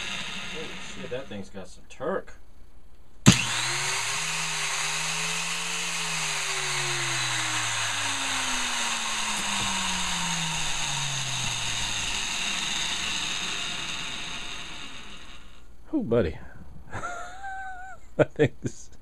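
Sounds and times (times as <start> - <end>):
angle grinder winding down: 0.0 - 1.4, 3.3 - 15.6.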